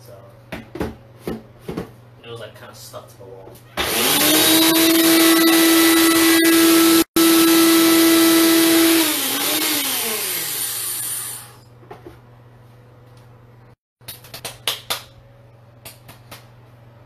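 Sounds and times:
electric blender whirring: 3.8s - 11.6s.

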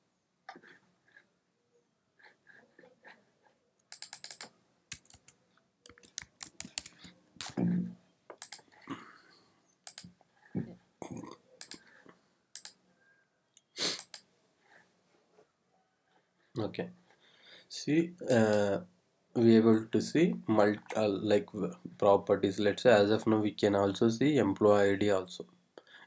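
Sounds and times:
mouse clicks: 3.8s - 7.6s, 9.8s - 10.1s, 11.6s - 11.9s, 13.6s - 14.3s
typing on keyboard: 3.8s - 7.6s, 8.4s - 8.8s, 9.8s - 10.1s, 11.6s - 12.8s, 14.0s - 14.2s.

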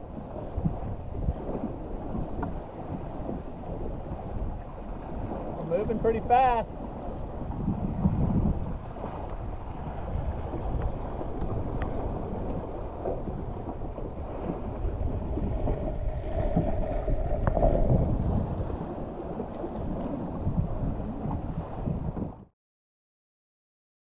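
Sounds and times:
water rushing along hull: 0.0s - 22.5s
wind buffeting microphone: 0.0s - 22.5s.

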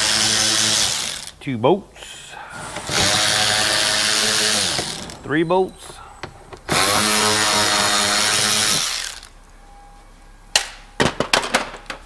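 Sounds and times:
power drill running: 0.0s - 1.4s, 2.6s - 5.2s, 6.7s - 9.4s.

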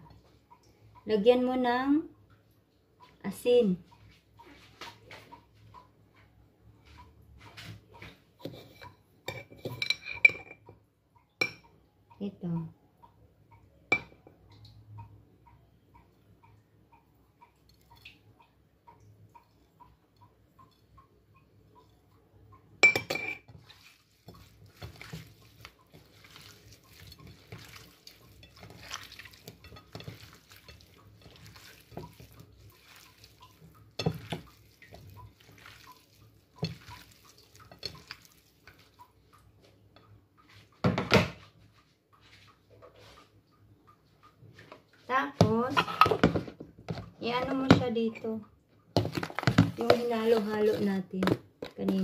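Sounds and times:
faint ticking: 11.1s - 22.8s
plate clinking and knocking: 22.8s - 23.5s
wet handling of raw meat: 23.5s - 39.8s.

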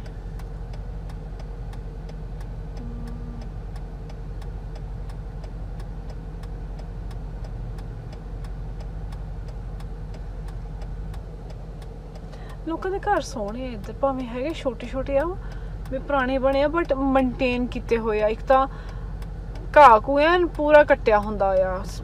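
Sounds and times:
engine and road rumble: 0.0s - 22.0s
light ticks: 0.0s - 22.0s
faint hum: 2.7s - 3.9s.

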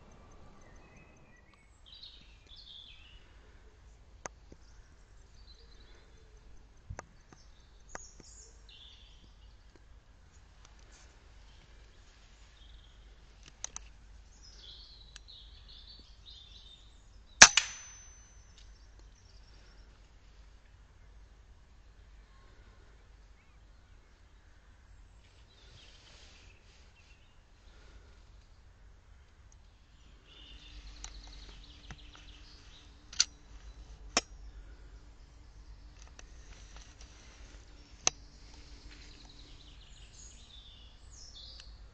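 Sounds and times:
birds chirping: 0.0s - 9.9s, 10.6s - 20.4s, 21.0s - 41.9s
faint steady hum: 0.0s - 41.9s
small clicks: 13.4s - 14.0s, 30.9s - 34.3s
air rifle shot: 17.4s - 18.1s
sharp clicks: 17.4s - 18.2s, 33.1s - 33.4s.

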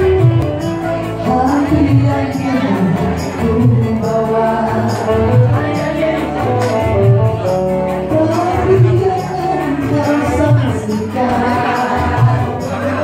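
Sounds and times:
electronic keyboard: 0.0s - 13.0s
steady percussion beat: 0.0s - 13.0s
woman singing into a microphone: 0.0s - 13.0s.

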